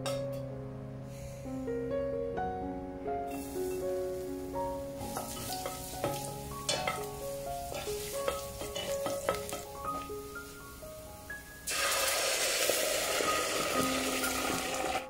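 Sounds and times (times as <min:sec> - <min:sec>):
background music: 0:00.0 - 0:15.0
garlic sizzling in a pan: 0:03.3 - 0:15.0.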